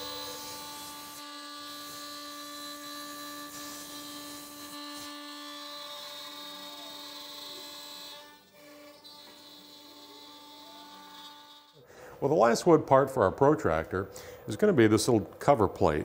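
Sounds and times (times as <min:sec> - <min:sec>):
router spindle whine: 0:00.0 - 0:11.8
hiss of wood cutting: 0:00.0 - 0:11.9.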